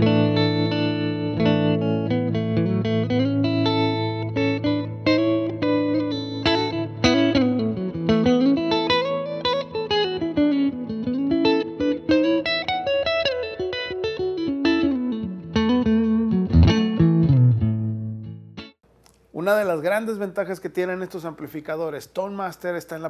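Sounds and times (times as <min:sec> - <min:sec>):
electric guitar melody: 0:00.0 - 0:18.8.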